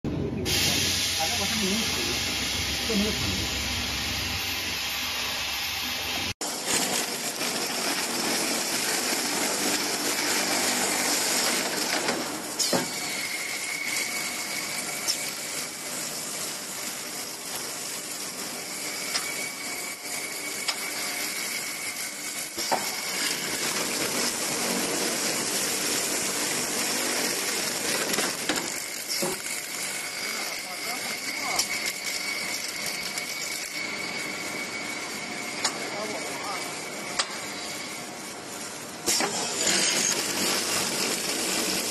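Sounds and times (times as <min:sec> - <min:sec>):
thin high whine: 0:00.1 - 0:06.4, 0:29.0 - 0:41.8
machine mechanical hiss: 0:00.4 - 0:41.9.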